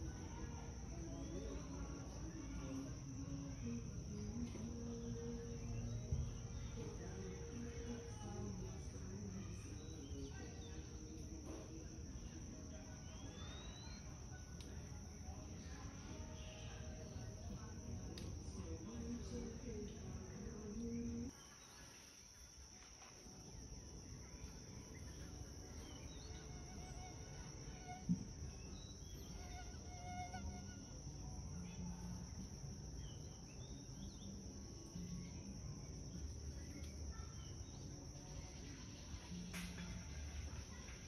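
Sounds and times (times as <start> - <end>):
insects droning: 0.0 - 41.0
faint bird chirps: 0.2 - 14.7, 24.2 - 30.9.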